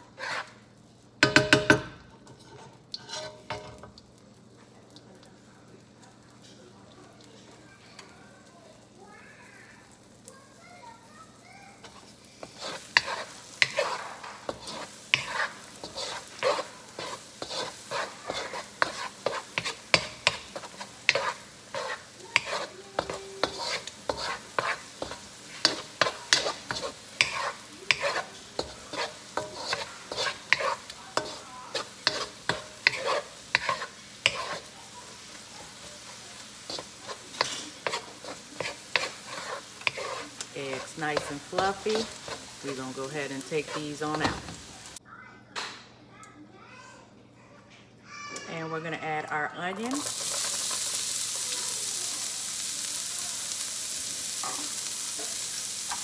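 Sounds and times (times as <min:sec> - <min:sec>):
wooden spoon scraping a wok: 0:00.0 - 0:04.7, 0:11.7 - 0:45.0, 0:49.8 - 0:56.0
eggs sizzling in oil: 0:00.0 - 0:45.0, 0:48.1 - 0:56.0.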